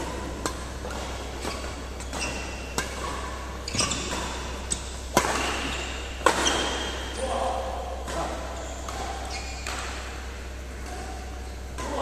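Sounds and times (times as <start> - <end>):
racket hitting shuttlecock: 0.0 - 12.0.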